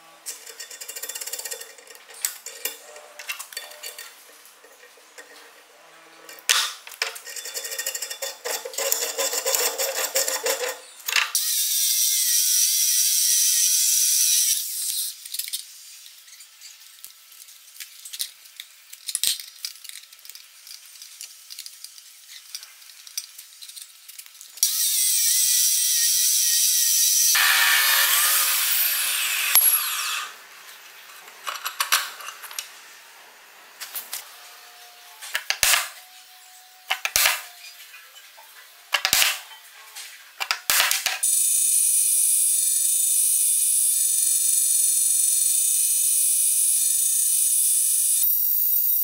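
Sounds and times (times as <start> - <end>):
chop saw grinding metal: 0.3 - 11.0, 24.6 - 30.4
vise screw turning with metal clicks: 6.3 - 11.2.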